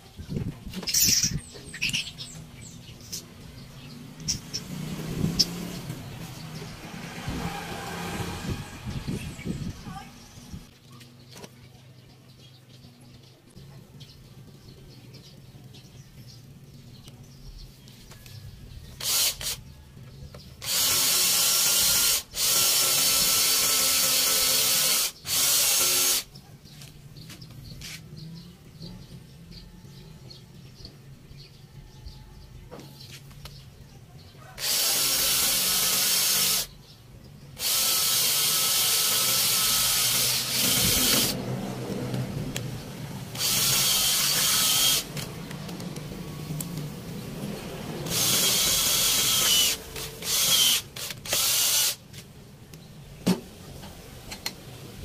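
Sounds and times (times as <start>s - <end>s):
cordless drill drilling into metal: 19.0s - 19.6s, 20.6s - 26.3s, 34.6s - 36.7s, 37.6s - 41.4s, 43.4s - 45.1s, 48.0s - 52.0s.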